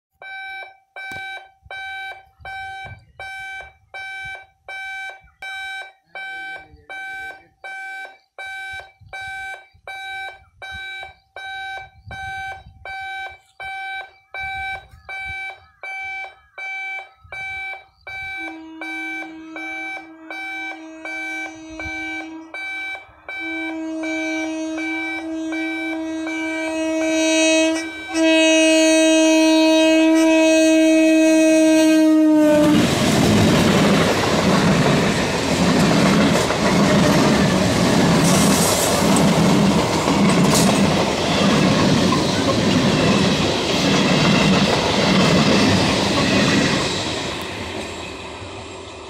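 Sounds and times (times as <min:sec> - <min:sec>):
level crossing alarm beeping: 0:00.2 - 0:29.4, 0:34.0 - 0:47.8
train horn: 0:18.2 - 0:32.9.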